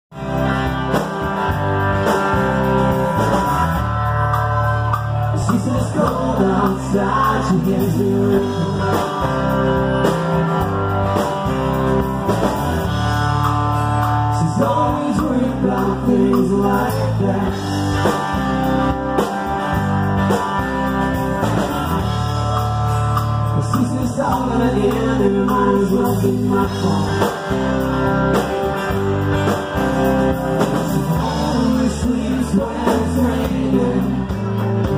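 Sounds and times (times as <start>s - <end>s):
electric bass: 0.0s - 34.9s
acoustic guitar: 0.1s - 34.9s
electric guitar: 0.1s - 34.9s
man singing lead: 5.3s - 9.8s, 14.2s - 18.4s, 23.4s - 27.6s, 30.5s - 34.9s.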